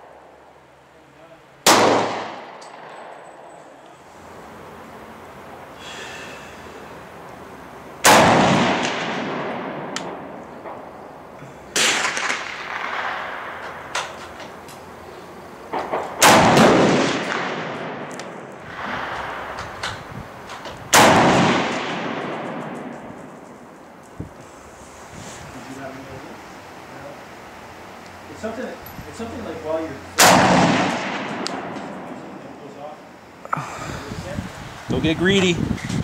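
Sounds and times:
rifle shots echoing: 1.6 - 3.8, 8.0 - 14.6, 15.7 - 19.9, 20.9 - 24.0, 30.2 - 32.7.

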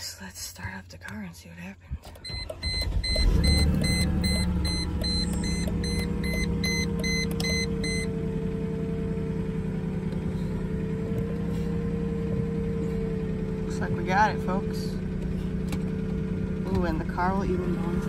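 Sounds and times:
car engine starting and idling: 0.0 - 18.0
dashboard warning chime beeping: 2.2 - 8.3.

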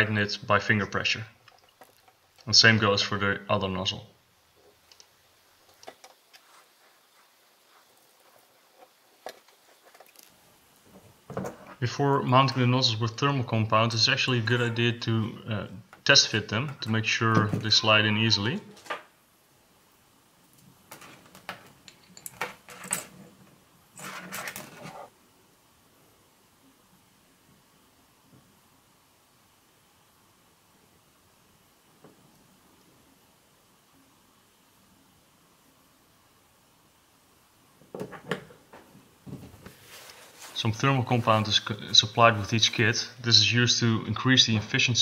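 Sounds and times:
scraping handling noise: 20.9 - 23.4, 24.0 - 25.1.

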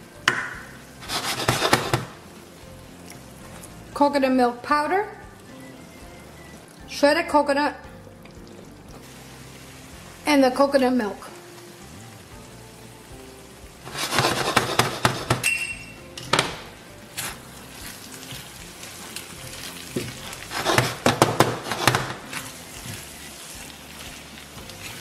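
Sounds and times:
wooden spoon scraping a pan: 1.0 - 2.2, 13.8 - 15.4, 17.1 - 25.0.

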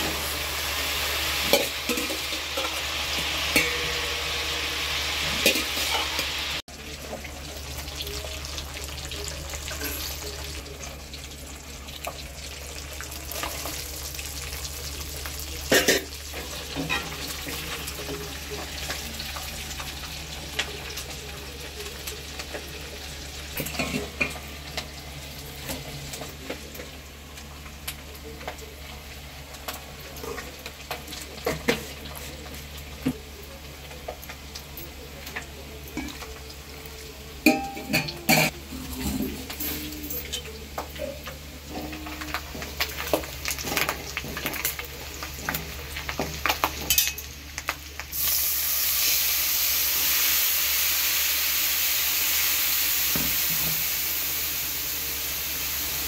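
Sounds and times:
paste sizzling in hot oil: 0.0 - 6.8, 42.0 - 56.0.

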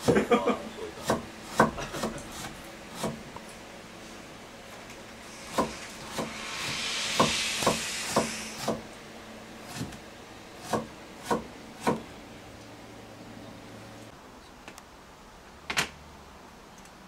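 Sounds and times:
knife chopping on wooden board: 1.0 - 3.2, 5.5 - 6.4, 7.2 - 8.8, 9.7 - 10.0, 10.6 - 12.0
hiss: 5.2 - 9.0.

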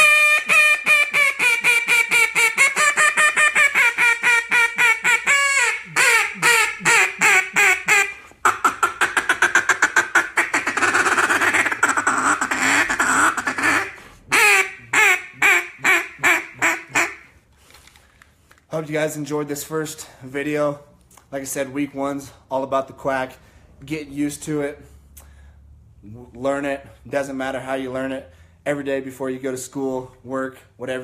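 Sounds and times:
duck call quacks: 0.0 - 17.3.

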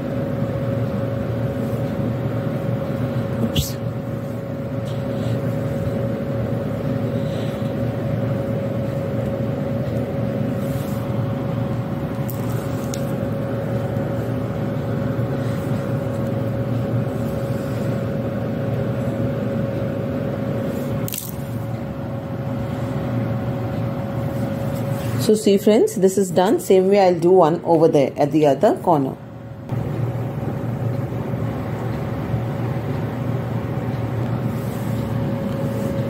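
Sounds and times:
electric motor hum and whine: 0.0 - 36.0.

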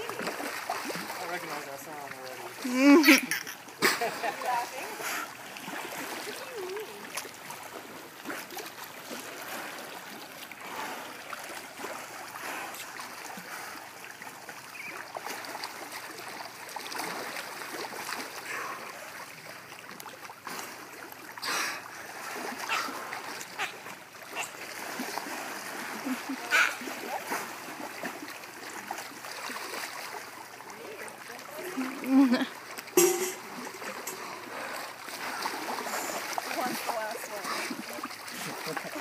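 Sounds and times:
pool water splashing and lapping: 0.0 - 39.0
sharp loud splashes: 32.9 - 34.2.

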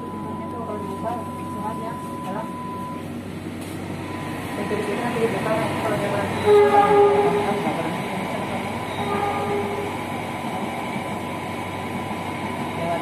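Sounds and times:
train horn blasts: 6.4 - 7.6, 8.9 - 10.0.

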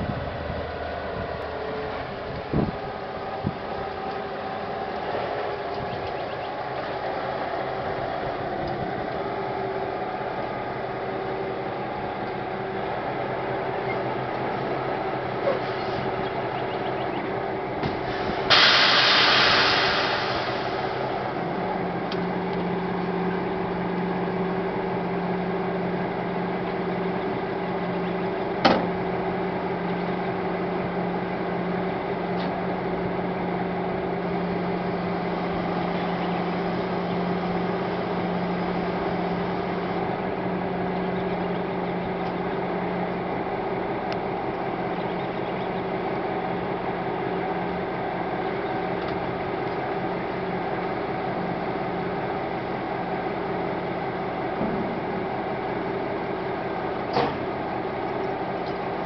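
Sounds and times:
auger mechanical drone: 0.0 - 59.0
loud hiss: 17.9 - 21.6.

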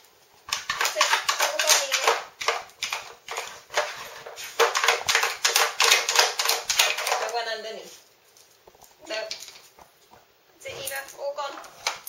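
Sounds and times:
hard plastic clattering and rattling: 0.5 - 7.4.

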